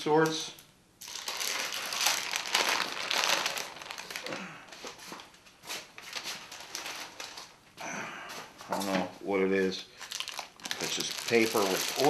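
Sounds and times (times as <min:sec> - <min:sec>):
paper peeling and crumpling: 0:01.0 - 0:07.6, 0:10.0 - 0:12.0.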